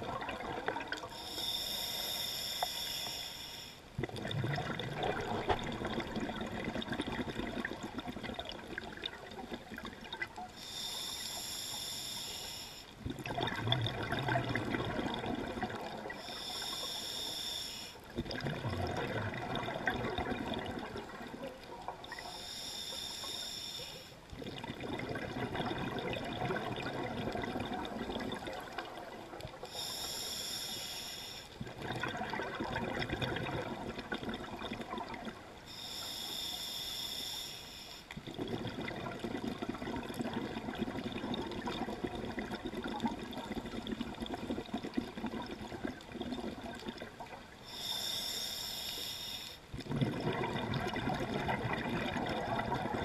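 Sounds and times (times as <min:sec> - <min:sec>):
regulator hissing inhalation: 0:01.2 - 0:03.8, 0:10.6 - 0:12.9, 0:16.2 - 0:18.0, 0:22.1 - 0:24.2, 0:29.7 - 0:31.6, 0:35.7 - 0:38.1, 0:47.7 - 0:49.6
bubbling exhalations: 0:04.0 - 0:10.1, 0:13.1 - 0:16.2, 0:18.2 - 0:21.5, 0:24.4 - 0:29.2, 0:31.6 - 0:35.4, 0:49.8 - 0:53.0.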